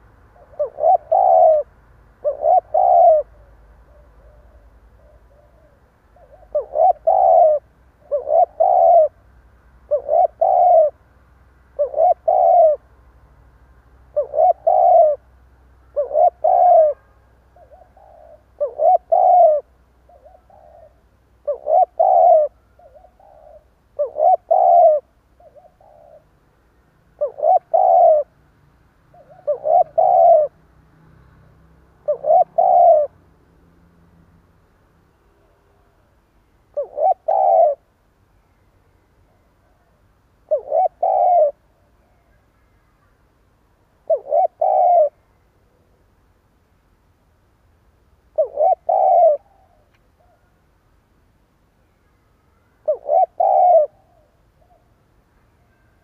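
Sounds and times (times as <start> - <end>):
dove cooing: 0.0 - 11.0, 11.7 - 12.9, 14.1 - 26.5, 27.1 - 28.4, 29.1 - 30.6, 32.0 - 33.2, 36.7 - 37.9, 39.3 - 43.1, 44.0 - 46.0, 48.3 - 50.6, 52.6 - 55.0.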